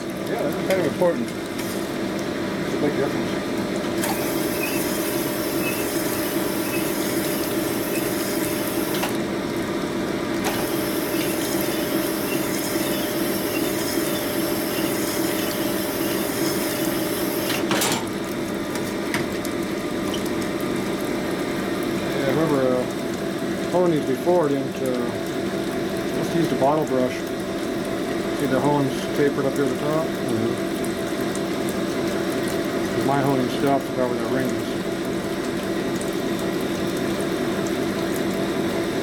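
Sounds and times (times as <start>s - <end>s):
oil pump wet hum: 0.0s - 39.0s
honing machine running: 4.0s - 9.2s, 10.5s - 17.6s.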